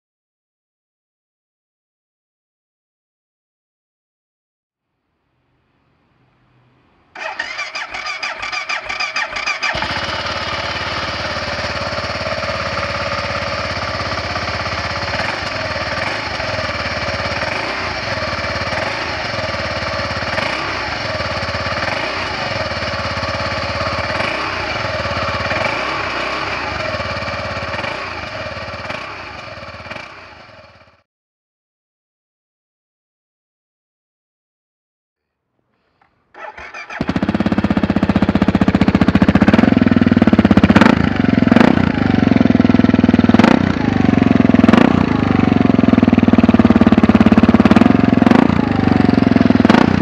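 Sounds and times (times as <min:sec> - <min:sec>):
starter motor cranking: 0:07.2 - 0:10.4, 0:36.3 - 0:39.6
motorcycle engine running: 0:07.2 - 0:31.0, 0:36.4 - 0:50.0.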